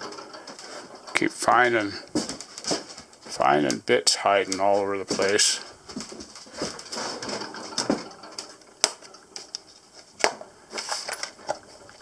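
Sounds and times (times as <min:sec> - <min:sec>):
tools clattering in metal chest: 0:06.6 - 0:09.2, 0:10.7 - 0:11.7.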